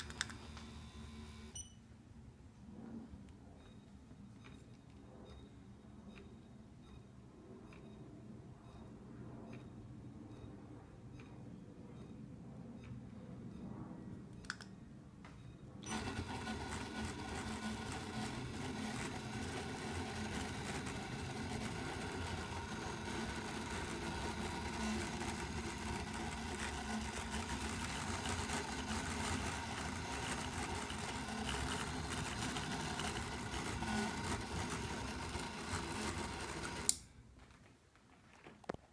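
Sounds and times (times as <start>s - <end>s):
motors buzzing: 15.8s - 37.0s.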